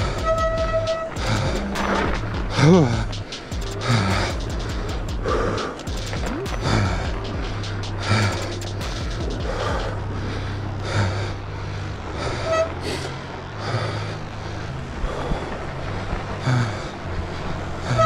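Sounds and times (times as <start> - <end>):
horn toot: 0.0 - 4.6
low rumble: 0.0 - 18.0
person breathing hard: 1.2 - 5.9, 6.5 - 18.0.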